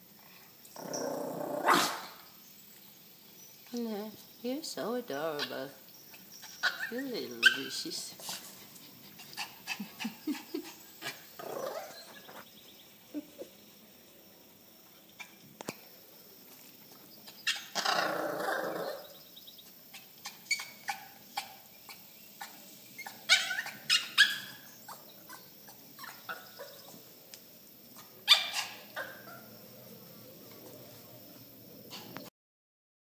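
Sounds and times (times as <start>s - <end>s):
small dogs barking and yipping: 0.8s - 2.3s, 5.2s - 12.4s, 17.2s - 27.1s, 27.9s - 31.1s, 31.9s - 32.3s.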